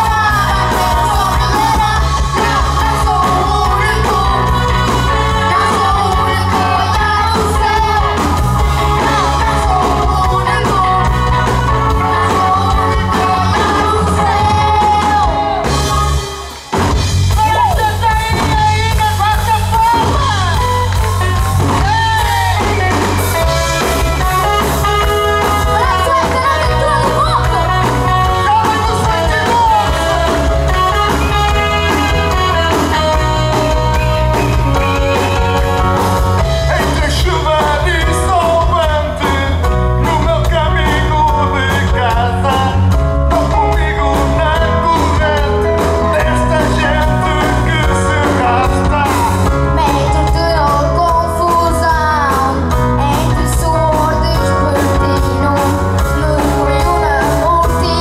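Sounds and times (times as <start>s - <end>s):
boy singing: 0.0s - 16.1s, 43.4s - 58.0s
man singing: 0.0s - 16.4s, 17.3s - 20.8s, 24.2s - 35.6s, 36.4s - 58.0s
pop-rock band playing: 0.0s - 58.0s.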